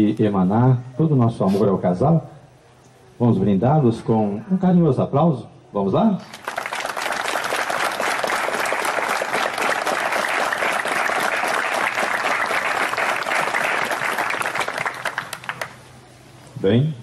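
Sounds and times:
crowd applauding: 0:06.3 - 0:15.8.

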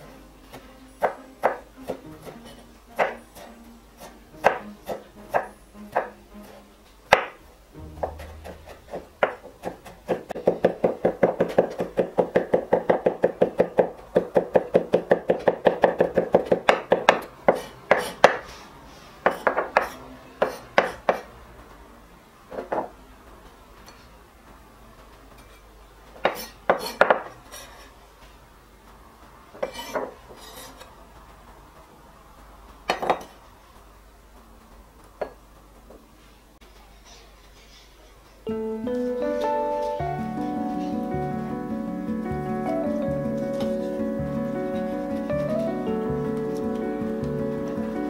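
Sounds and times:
knife chopping on wooden board: 0:01.0 - 0:07.4, 0:08.0 - 0:18.4.

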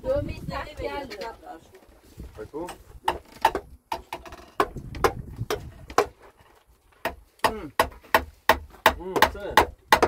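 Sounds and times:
hammer striking wood: 0:03.0 - 0:06.2, 0:07.0 - 0:10.0.

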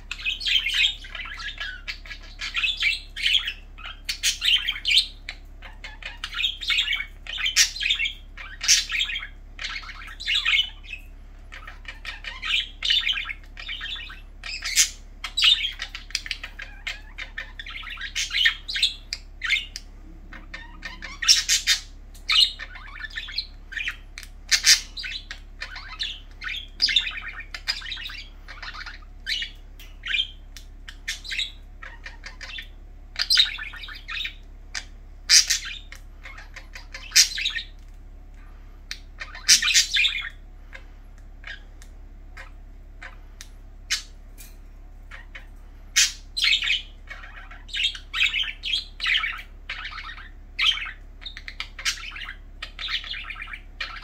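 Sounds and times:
budgerigars chirping: 0:00.0 - 0:54.0.

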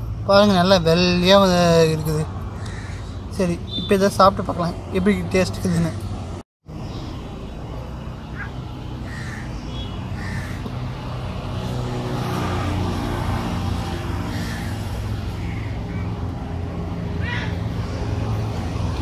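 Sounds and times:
short bird calls: 0:08.3 - 0:10.7.

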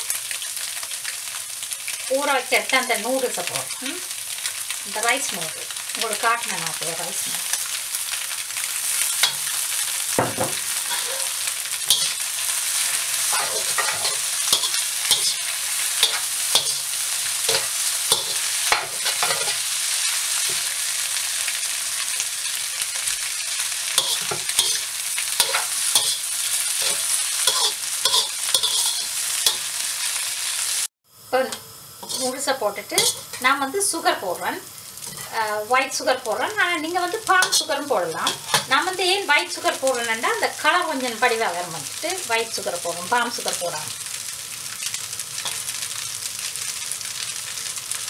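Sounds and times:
noodles sizzling in a wok: 0:00.0 - 0:48.0
metal spatula scraping wok: 0:08.8 - 0:20.9, 0:23.7 - 0:30.6, 0:32.0 - 0:33.5, 0:35.0 - 0:35.4, 0:37.2 - 0:38.8.

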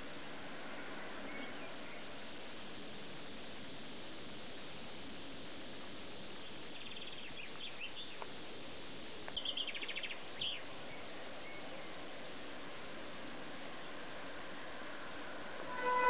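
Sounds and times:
steady background hiss: 0:00.0 - 0:16.0
rapid chirping trills: 0:06.4 - 0:08.2, 0:09.4 - 0:12.2.

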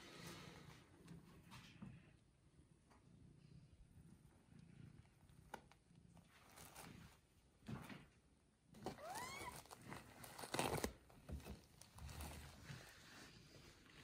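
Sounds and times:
rustling of bedding and fur: 0:09.0 - 0:14.0.

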